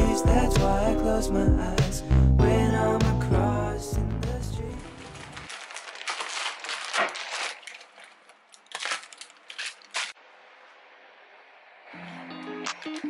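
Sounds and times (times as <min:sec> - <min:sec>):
plastic packets crinkling: 0:04.8 - 0:10.2.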